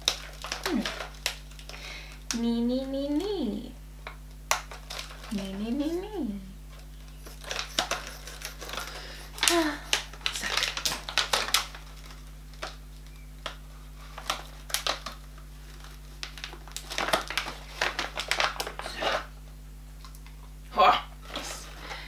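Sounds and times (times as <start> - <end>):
packet crinkling: 0.0 - 2.4, 4.2 - 6.1, 6.7 - 19.4.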